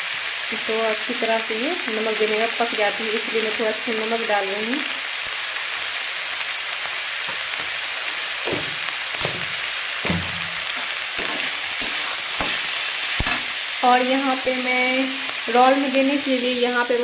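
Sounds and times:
vegetables sizzling in a wok: 0.0s - 17.0s
metal spatula scraping a pan: 8.5s - 13.6s.

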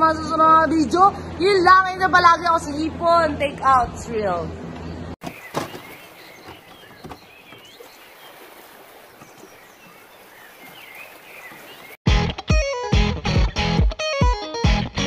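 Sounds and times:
bird chirps: 4.8s - 12.0s
loud guitar music: 12.1s - 15.0s.

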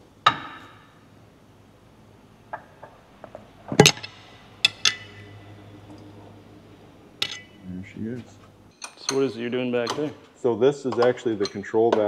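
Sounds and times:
metal tools clinking: 3.7s - 6.2s, 7.2s - 10.2s.

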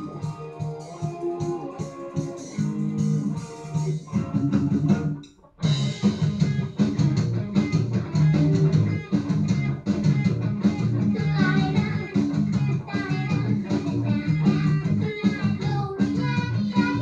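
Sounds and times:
rock band playing through tv speakers: 0.0s - 17.0s.

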